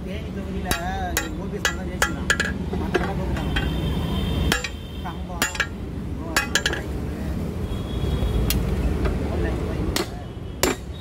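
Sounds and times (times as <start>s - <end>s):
hammer striking hot steel: 0.6s - 3.7s, 4.5s - 4.8s, 5.4s - 6.9s, 9.9s - 11.0s
metallic ring: 4.5s - 5.8s.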